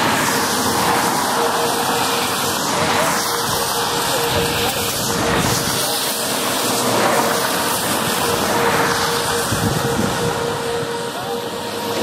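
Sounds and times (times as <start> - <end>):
wind rushing on microphone: 2.7 - 11.0.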